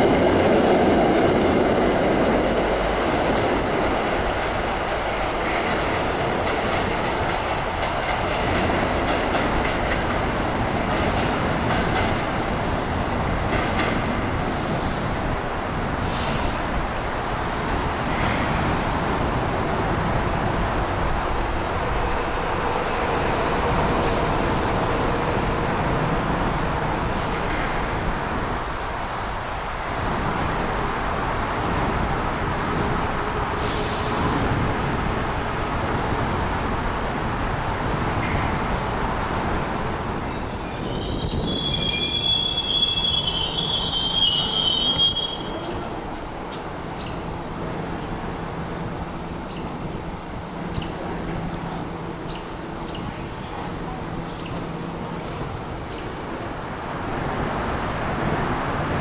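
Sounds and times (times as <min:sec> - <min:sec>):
train rumbling past: 0:00.0 - 0:59.0
high wheel squeals: 0:40.2 - 0:45.8.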